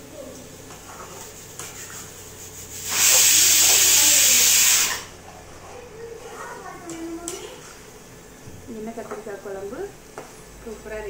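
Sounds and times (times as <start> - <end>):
loud steady hiss: 2.3 - 5.2.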